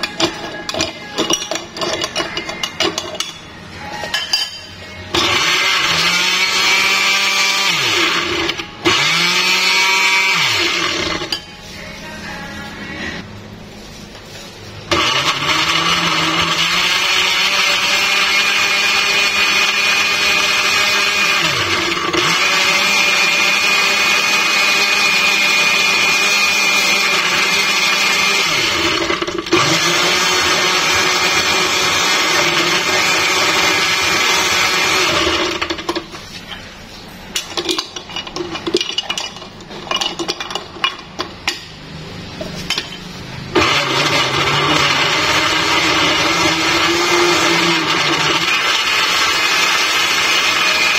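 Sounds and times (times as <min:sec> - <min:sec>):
spoon clinking on glass jar: 0:00.0 - 0:04.8
blender motor whirring: 0:05.1 - 0:11.4, 0:14.9 - 0:36.0, 0:43.5 - 0:50.9.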